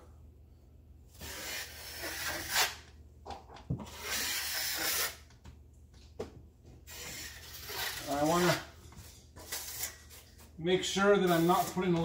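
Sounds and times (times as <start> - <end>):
blade scraping compound on wall: 1.2 - 2.8, 3.8 - 5.2, 6.9 - 12.0.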